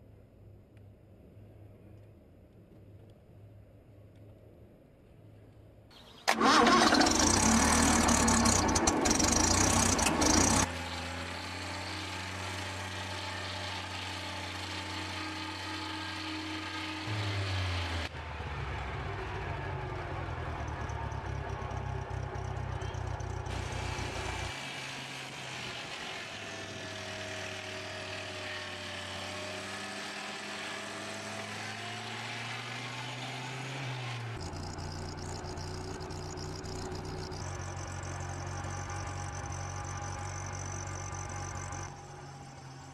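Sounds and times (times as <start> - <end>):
sawmill engines running: 6.3 - 42.9
circular saw blade spinning: 7.2 - 10.7, 34.4 - 42.9.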